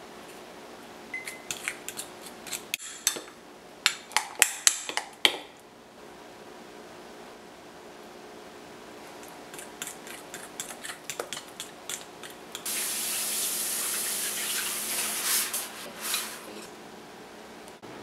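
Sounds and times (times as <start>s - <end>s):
fork scraping glass bowl: 9.5s - 12.3s
steady hiss: 12.7s - 16.5s.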